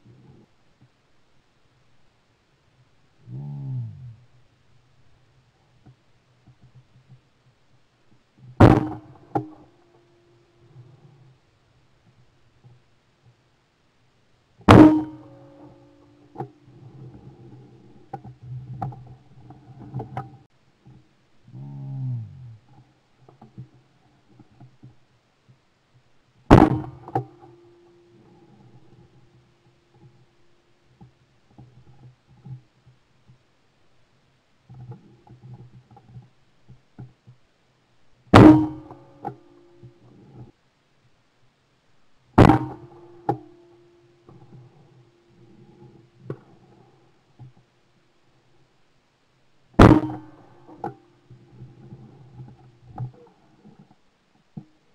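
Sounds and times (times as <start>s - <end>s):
shotgun shot: 8.6s - 9.1s, 14.7s - 15.3s, 26.5s - 27.2s, 42.4s - 42.8s, 49.8s - 50.4s
sharp knock: 8.6s - 9.5s, 14.7s - 15.3s, 26.5s - 27.3s, 38.4s - 39.0s, 42.4s - 42.9s, 49.8s - 50.4s.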